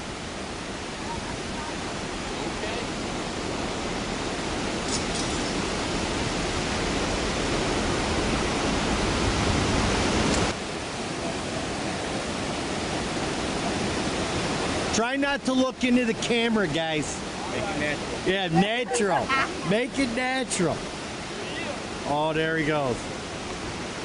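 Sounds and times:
water rushing over a spillway: 0:00.0 - 0:24.0.

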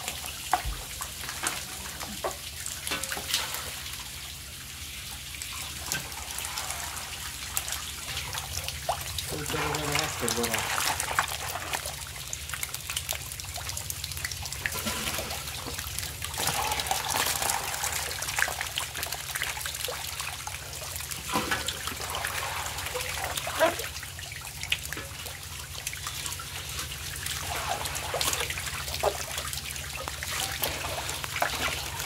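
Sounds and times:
fish splashing in water: 0:00.0 - 0:32.0.

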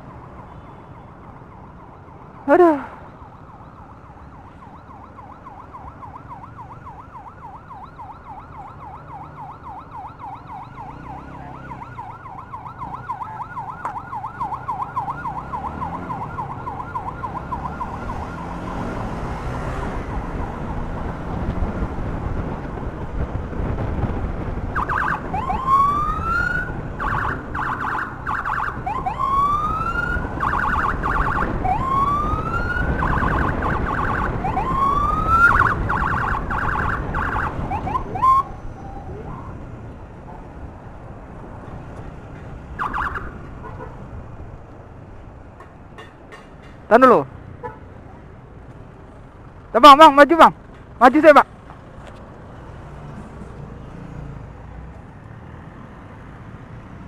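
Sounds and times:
siren whooping and pulsing: 0:00.0 - 0:21.9, 0:24.6 - 0:39.6, 0:42.8 - 0:43.4
road and engine noise: 0:00.0 - 0:57.0
siren fast warble: 0:00.1 - 0:19.0, 0:24.8 - 0:39.5, 0:42.8 - 0:43.4.

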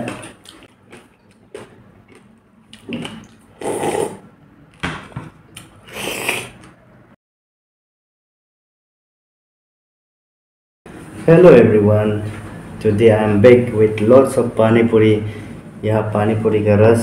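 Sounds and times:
slurping from a bowl: 0:03.0 - 0:04.3, 0:05.8 - 0:06.8.

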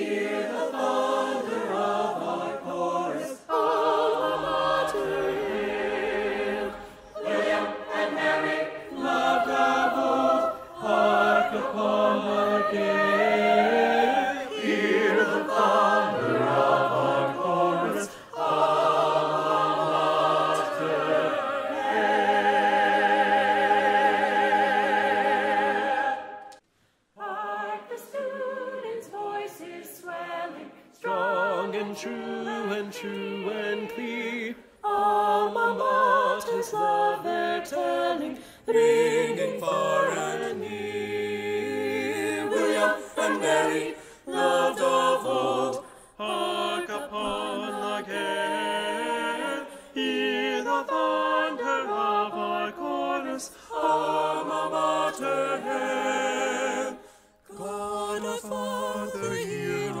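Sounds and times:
choir singing a cappella: 0:00.0 - 0:26.6, 0:27.2 - 1:00.0.

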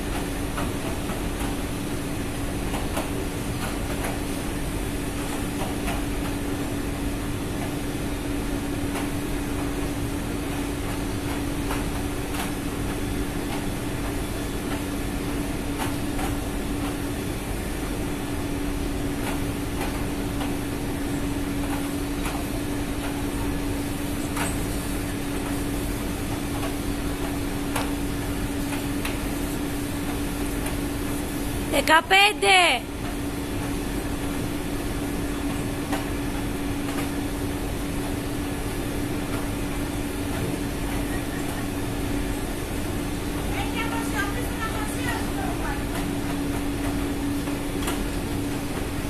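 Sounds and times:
steady machinery rumble: 0:00.0 - 0:49.0
ship machinery humming: 0:12.9 - 0:34.6.

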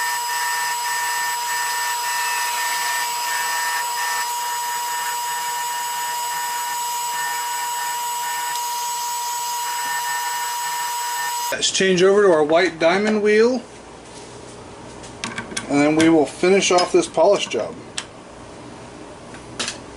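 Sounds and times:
lathe whining: 0:00.0 - 0:11.6.

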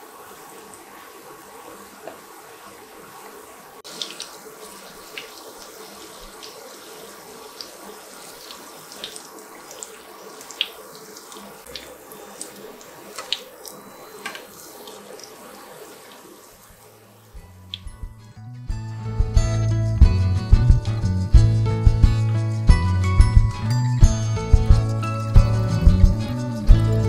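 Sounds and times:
oil popping and crackling: 0:03.8 - 0:16.3.

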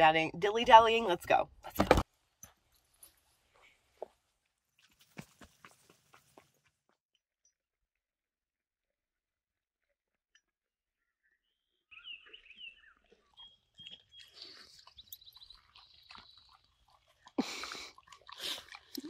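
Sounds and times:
dog chewing: 0:13.7 - 0:19.0.

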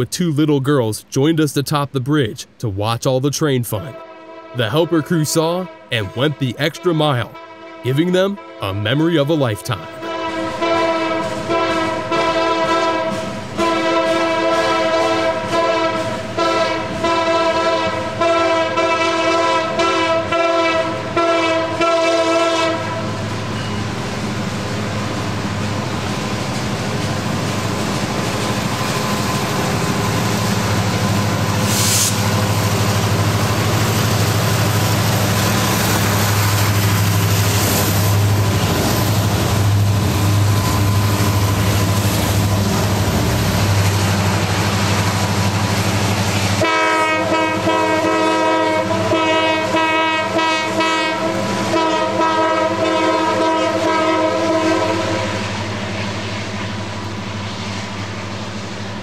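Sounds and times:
diesel locomotive engines droning: 0:00.0 - 0:59.0
locomotive air horn: 0:03.8 - 0:09.0, 0:09.7 - 0:23.2, 0:31.6 - 0:32.8, 0:46.6 - 0:55.4.

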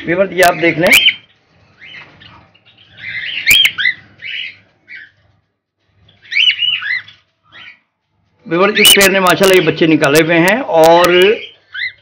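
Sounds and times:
cockatiels chirping: 0:00.4 - 0:05.2, 0:06.0 - 0:07.8, 0:11.4 - 0:12.0.

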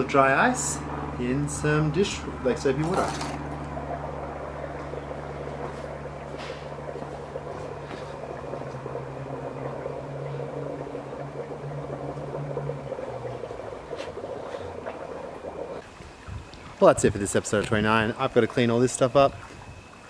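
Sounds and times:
dry ice bubbling and fizzing: 0:00.0 - 0:20.0
steady low hum: 0:00.0 - 0:20.0
bubbles popping: 0:02.2 - 0:16.8.

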